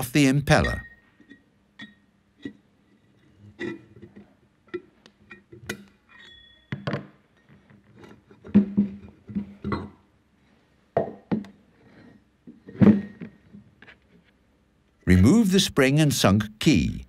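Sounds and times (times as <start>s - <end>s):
brief metallic ringing tone: 6.2s - 6.8s.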